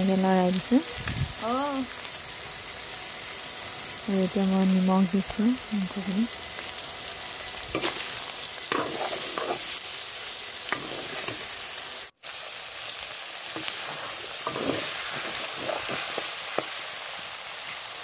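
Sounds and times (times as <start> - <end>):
chicken sizzling in hot oil: 0.0 - 18.0
metal spatula scraping pan: 7.7 - 9.8, 10.7 - 11.6, 13.6 - 16.7.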